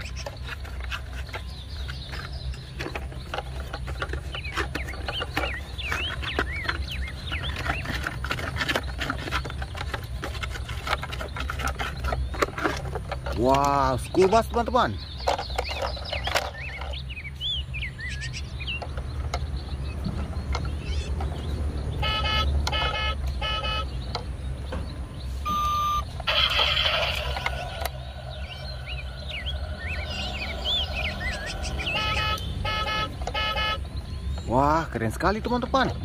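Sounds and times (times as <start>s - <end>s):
birds chirping: 0.0s - 36.0s
electronic beep: 22.0s - 23.9s, 25.4s - 27.8s, 30.0s - 33.8s
toy horn toots: 22.0s - 23.9s, 25.5s - 27.8s, 31.6s - 33.8s.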